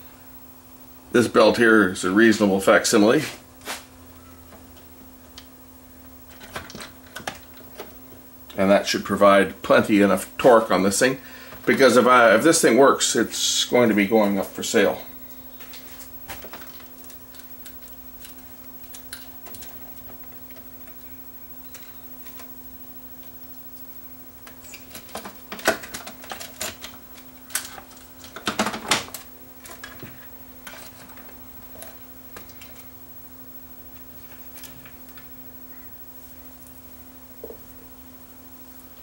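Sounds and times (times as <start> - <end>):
steady low hum: 0.0 - 39.0
plastic parts clicking and rattling: 24.4 - 31.9.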